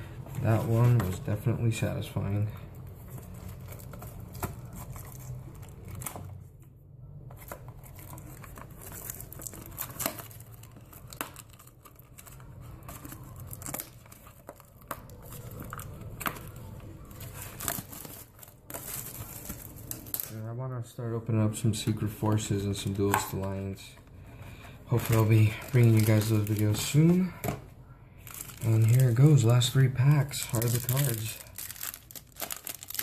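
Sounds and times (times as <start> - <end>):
foil wrapper crinkling: 7.4 - 20.4, 24.6 - 27.3, 28.2 - 33.0
foil wrapper tearing: 24.9 - 27.2, 28.3 - 33.0.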